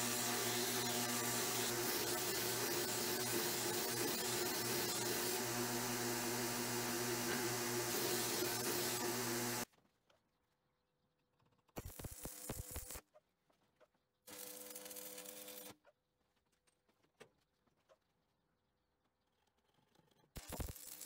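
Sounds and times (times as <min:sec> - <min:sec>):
belt sander grinding steel: 0:00.0 - 0:09.6.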